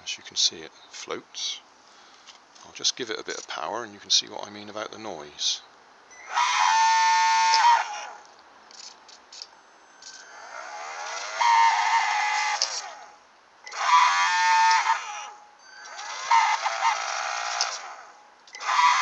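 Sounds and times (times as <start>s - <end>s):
ducted fan motor whining: 6.1s - 19.0s.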